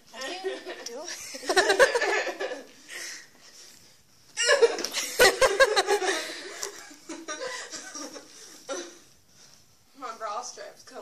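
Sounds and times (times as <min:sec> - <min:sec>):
people laughing: 0:00.4 - 0:02.8, 0:04.4 - 0:08.5.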